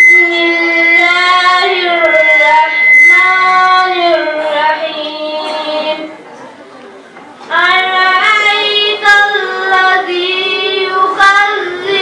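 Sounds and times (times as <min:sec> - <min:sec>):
thin whistle-like tone: 0:00.0 - 0:03.9
person chanting recitation: 0:00.0 - 0:06.1, 0:07.5 - 0:12.0.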